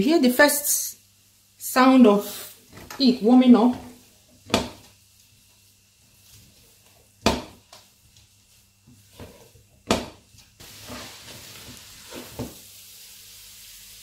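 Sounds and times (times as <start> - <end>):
food sizzling: 0.0 - 14.0
wooden spatula knocking on metal pot: 4.5 - 4.9, 7.2 - 7.6, 9.8 - 10.2.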